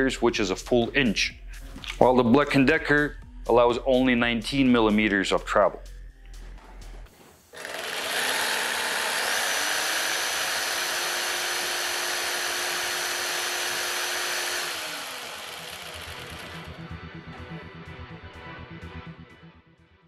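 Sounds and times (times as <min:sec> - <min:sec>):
jigsaw motor whine: 0:07.6 - 0:16.8.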